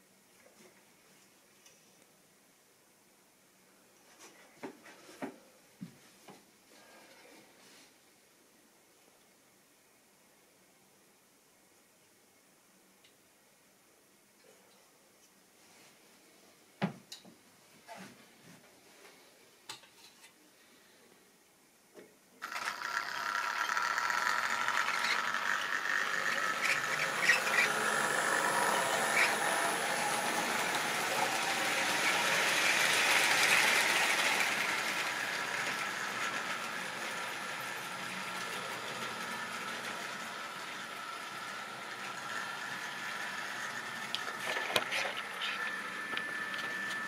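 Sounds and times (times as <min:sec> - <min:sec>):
model train motor whirring: 0:22.4 - 0:47.0
wheels rolling on track: 0:22.4 - 0:47.0.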